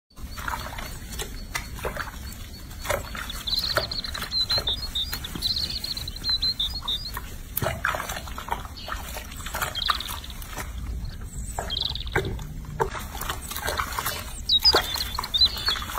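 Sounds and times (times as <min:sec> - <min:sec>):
water splashing in a sink: 0:00.2 - 0:15.9
baby monkey squeaking: 0:02.5 - 0:07.4.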